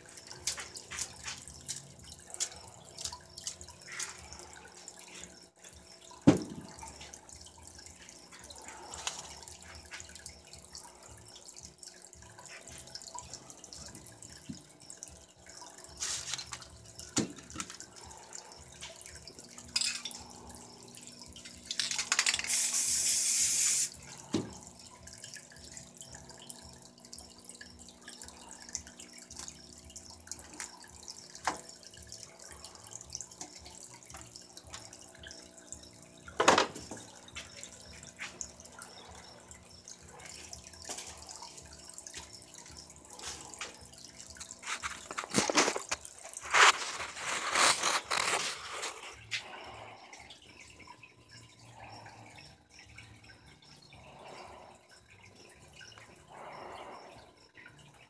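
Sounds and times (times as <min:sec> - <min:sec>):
cans and tools clicking: 0:15.9 - 0:17.9, 0:18.8 - 0:20.4, 0:21.4 - 0:24.6, 0:43.2 - 0:49.5
spray paint can hissing: 0:22.2 - 0:24.0.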